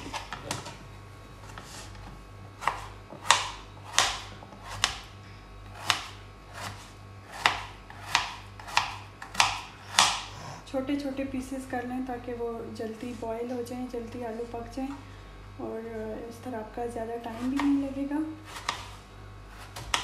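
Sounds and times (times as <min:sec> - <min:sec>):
knife chopping on cutting board: 0:02.6 - 0:05.1, 0:05.7 - 0:10.3, 0:18.5 - 0:20.0.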